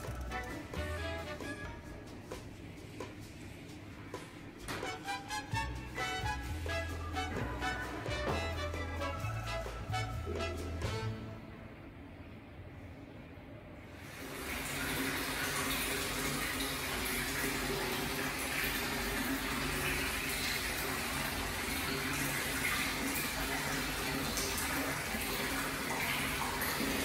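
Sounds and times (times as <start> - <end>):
water pouring into a bath: 14.0 - 27.0.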